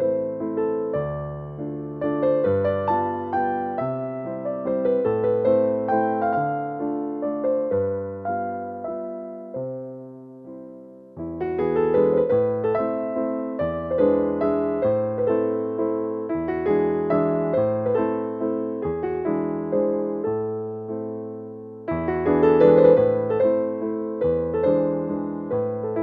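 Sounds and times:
piano music: 0.0s - 26.0s.

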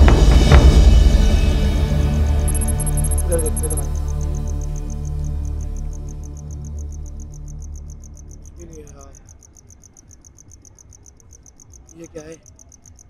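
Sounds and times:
low musical drone: 0.0s - 9.4s
crickets chirping: 0.0s - 13.0s
voice-like sound: 3.2s - 4.0s.

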